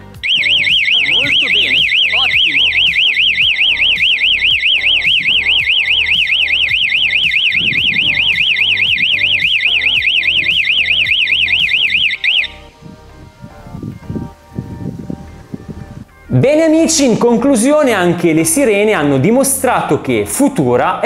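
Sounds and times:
alarm siren warbling: 0:00.0 - 0:14.4.

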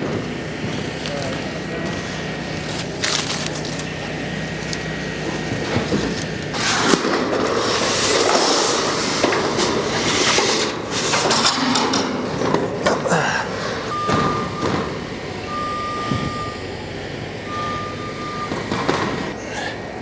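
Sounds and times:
sheet metal rattling and scraping: 0:05.6 - 0:14.8.

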